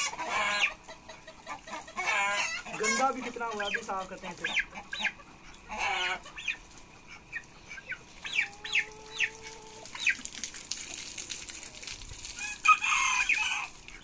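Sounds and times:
turkey peeping: 0.0s - 10.4s, 12.4s - 14.0s
water splashing from hose: 1.5s - 5.0s, 7.9s - 14.0s.

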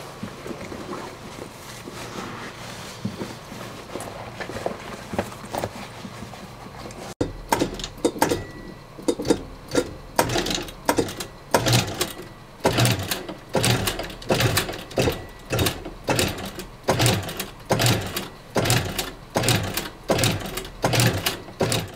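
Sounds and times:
sewing machine stitching leather: 7.2s - 21.9s.

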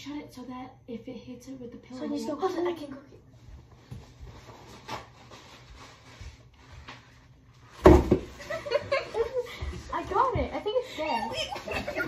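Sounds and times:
faint rustling and shuffling: 3.0s - 12.0s.

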